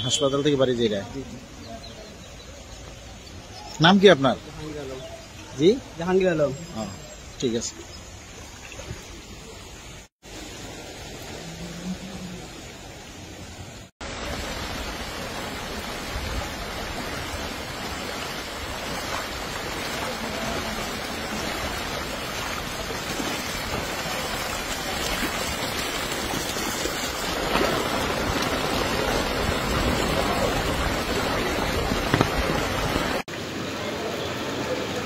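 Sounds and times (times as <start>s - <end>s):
heavy rain on flooded street: 14.0s - 35.0s.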